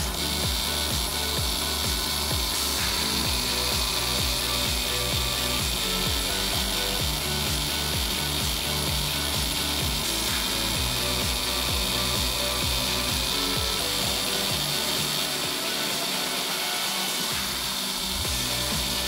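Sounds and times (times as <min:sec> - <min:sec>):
high noise of engraving head: 0:00.0 - 0:19.0
low hum of stepper motors: 0:00.0 - 0:19.0.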